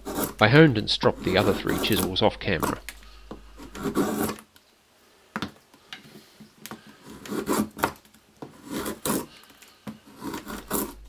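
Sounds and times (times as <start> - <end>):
chisel scraping wood: 0.0 - 4.4, 6.7 - 11.0.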